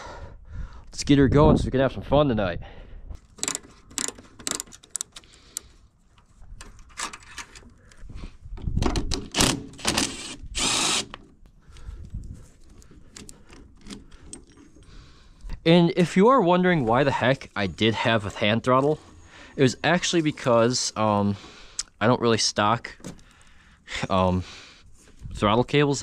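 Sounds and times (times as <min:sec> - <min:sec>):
hand tools clicking and clinking: 0:03.2 - 0:05.7, 0:12.6 - 0:15.1.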